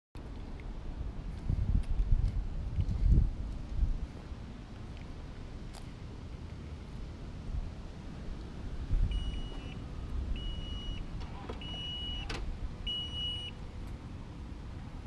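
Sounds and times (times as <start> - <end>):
car warning chime beeping: 9.1 - 13.6.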